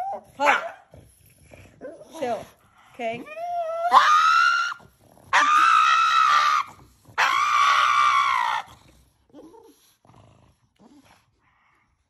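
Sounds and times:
dog screaming: 0:03.8 - 0:08.7.

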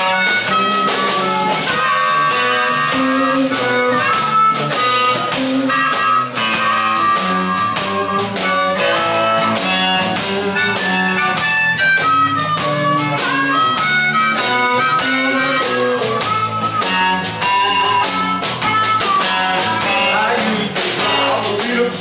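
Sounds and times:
drum kit: 0:00.0 - 0:22.0
electric guitars: 0:00.0 - 0:22.0
harmonica: 0:00.0 - 0:22.0.

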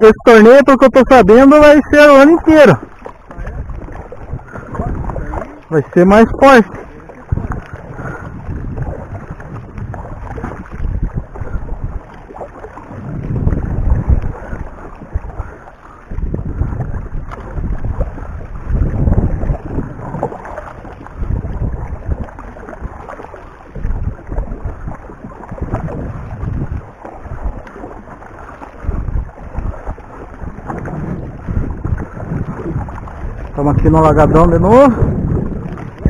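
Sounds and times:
kayak paddle dipping in water: 0:00.0 - 0:36.0
wind buffeting microphone: 0:00.0 - 0:36.0.

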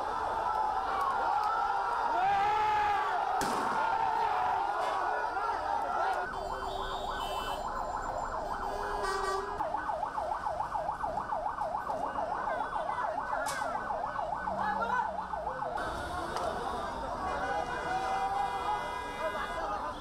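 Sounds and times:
siren yelping: 0:05.3 - 0:15.8.

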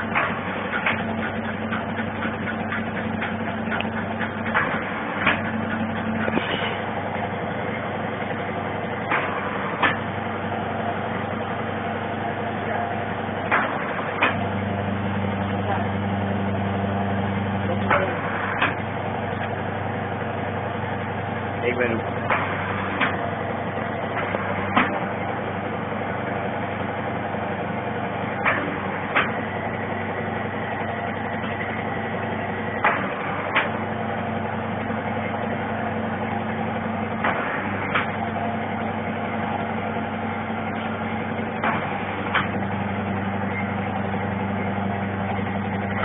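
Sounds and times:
sharp mechanical clacks: 0:00.0 - 0:06.9
machine motor hum: 0:00.0 - 0:46.0.

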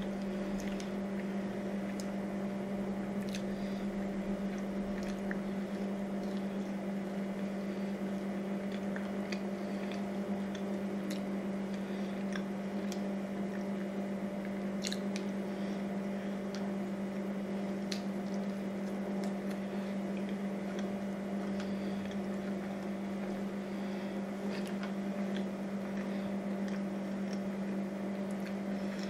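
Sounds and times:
chewing and wet mouth sounds: 0:00.0 - 0:02.2, 0:03.0 - 0:15.5, 0:16.4 - 0:29.0
low hum: 0:00.0 - 0:29.0
lip smacks and clicks: 0:03.2 - 0:03.5, 0:08.2 - 0:15.4, 0:17.8 - 0:23.3, 0:24.5 - 0:29.0.

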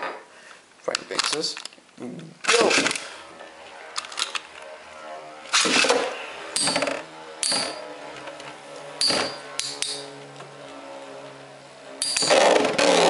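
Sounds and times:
metallic clacks of tops clashing: 0:07.4 - 0:07.9, 0:09.0 - 0:10.1, 0:12.0 - 0:12.4
spinning tops whirring: 0:09.0 - 0:10.2, 0:12.0 - 0:13.0.

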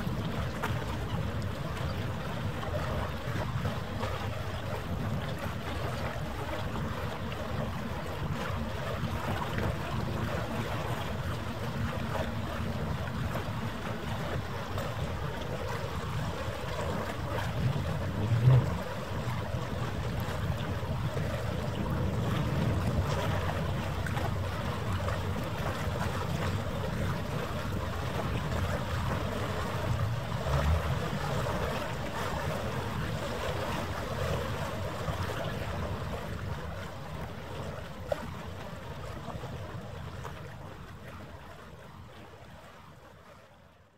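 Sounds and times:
wind on microphone: 0:00.0 - 0:38.4
harbour water washing: 0:00.0 - 0:43.8
low bumps: 0:17.4 - 0:20.2.

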